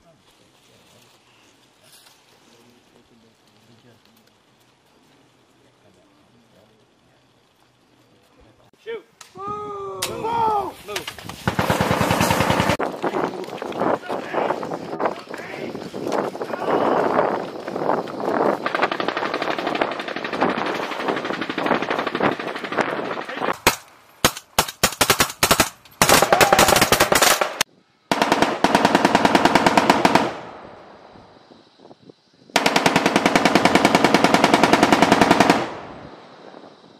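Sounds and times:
machine-gun bursts: 11.4 - 12.8, 18.6 - 30.4, 32.6 - 35.8
automatic gunfire: 11.5 - 12.8, 18.6 - 30.6, 32.6 - 36.0.

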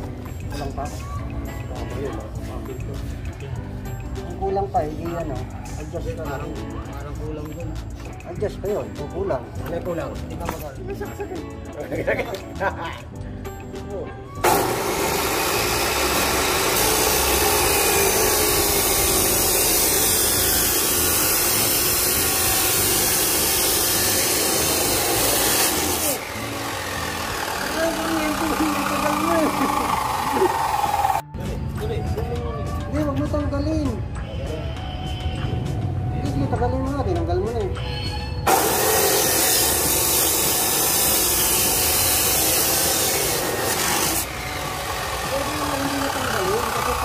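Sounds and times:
power tool running: 14.4 - 31.2, 38.5 - 47.0.

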